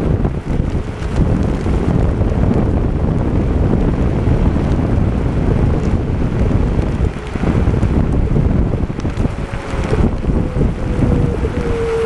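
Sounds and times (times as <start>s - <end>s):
wheel rumbling over dirt track: 0.0s - 12.0s
wind buffeting microphone: 0.0s - 12.0s.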